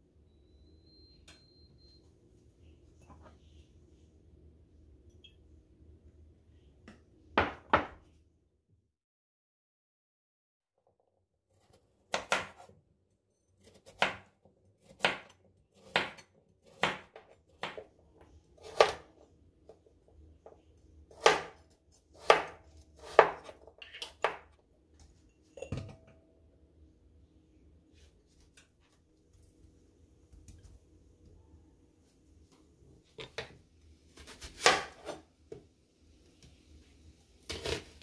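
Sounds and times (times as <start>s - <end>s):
knife chopping on cutting board: 12.1s - 12.7s, 14.8s - 17.9s, 18.6s - 19.1s, 21.1s - 21.6s, 22.2s - 23.6s, 34.2s - 35.2s.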